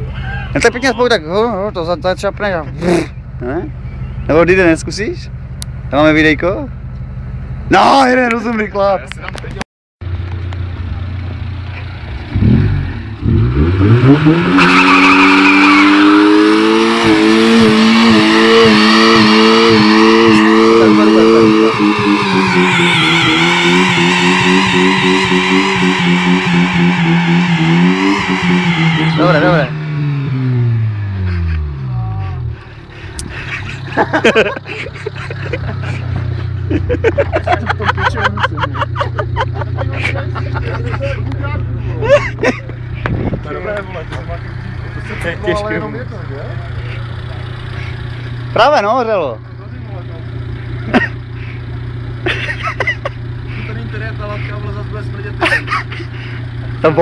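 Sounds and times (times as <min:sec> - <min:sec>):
car engine revving: 0:09.2 - 0:57.0
tyre spinning and squealing: 0:14.2 - 0:16.3
tyres squealing on concrete: 0:14.2 - 0:17.3, 0:19.1 - 0:29.7.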